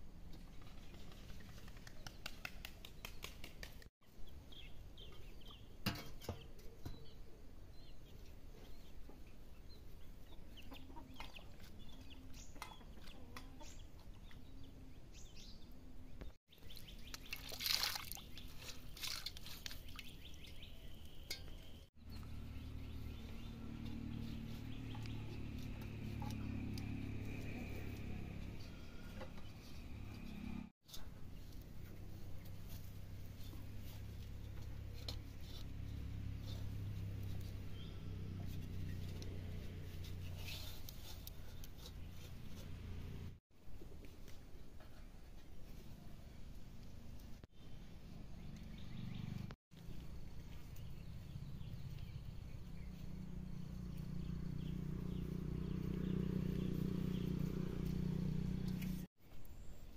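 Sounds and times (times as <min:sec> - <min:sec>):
chickens clucking: 0:10.2 - 0:14.3.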